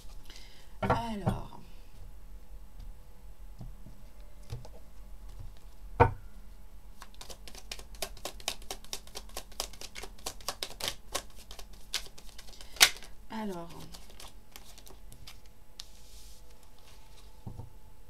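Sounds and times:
deck of cards shuffled by hand: 7.0 - 17.3.

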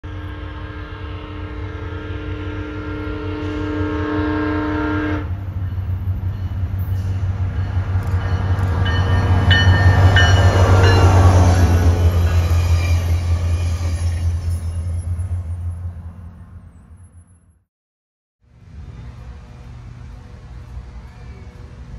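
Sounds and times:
train horn: 0.0 - 5.5
locomotive engine drone: 18.4 - 21.9.

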